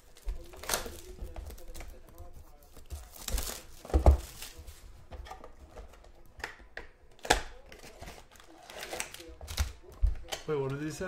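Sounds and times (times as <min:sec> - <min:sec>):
plastic wrap rustling: 0:00.0 - 0:05.6.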